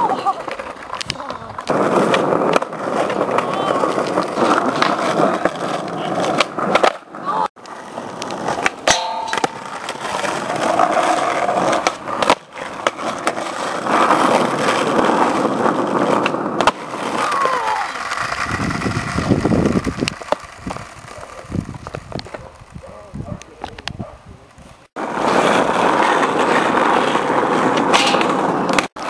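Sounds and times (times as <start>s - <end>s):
skateboard clacks: 0.0s - 24.1s, 25.0s - 29.0s
skateboard wheels rolling on concrete: 0.0s - 29.0s.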